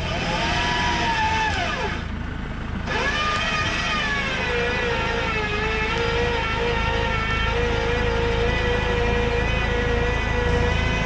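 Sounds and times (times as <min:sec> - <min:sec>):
electric winch motor whining: 0:00.0 - 0:11.0.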